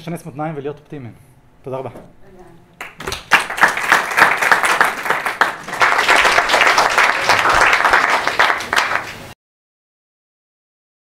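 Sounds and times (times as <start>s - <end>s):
audience applauding: 2.8s - 9.4s.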